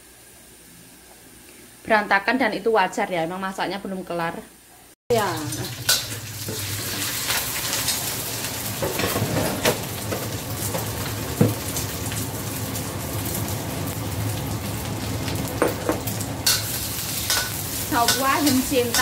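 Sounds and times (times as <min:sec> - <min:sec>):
egg and vegetables sizzling in a wok: 0:05.1 - 0:19.0.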